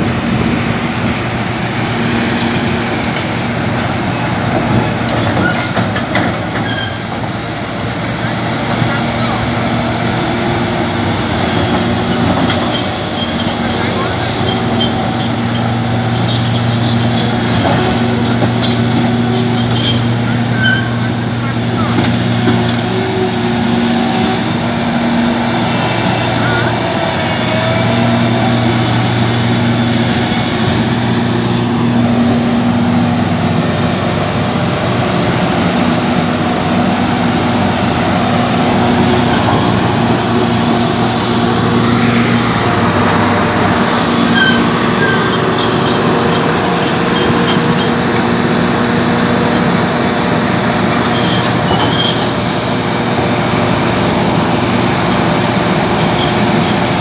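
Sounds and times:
excavator diesel engine humming: 0:00.0 - 0:57.0
steel tracks clanking: 0:00.0 - 0:57.0
short metallic squeals: 0:06.5 - 0:07.1, 0:12.4 - 0:17.9, 0:18.6 - 0:21.2, 0:44.1 - 0:48.1, 0:50.8 - 0:52.5.

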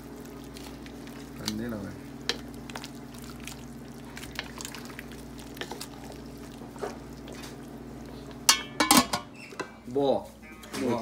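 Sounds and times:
soup sloshing and dripping: 0:00.0 - 0:01.6, 0:02.2 - 0:08.5
steady low hum: 0:00.0 - 0:10.6.

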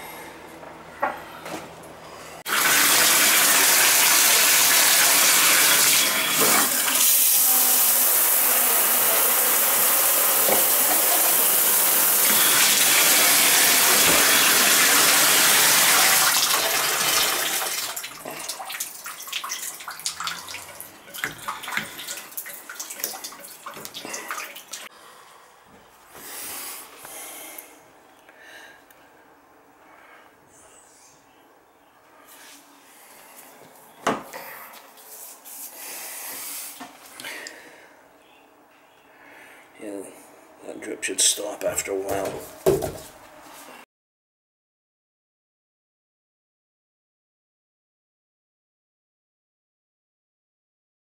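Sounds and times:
water running from bathtub spout: 0:02.5 - 0:24.9
water dripping and splashing: 0:16.0 - 0:24.9.

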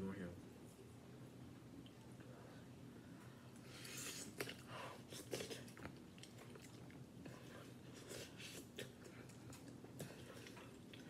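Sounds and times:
person slurping noodles: 0:03.7 - 0:05.8.

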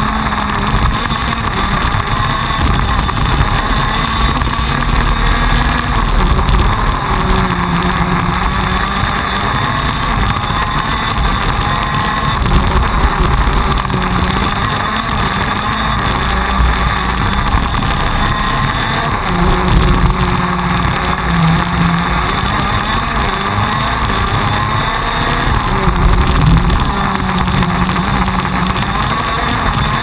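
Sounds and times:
kart engine at race pace: 0:00.0 - 0:30.0.

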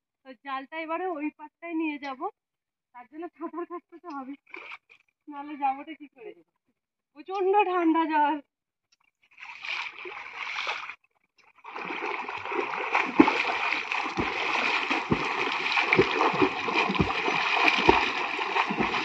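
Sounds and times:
person swimming and splashing: 0:09.4 - 0:11.0, 0:11.6 - 0:19.0.

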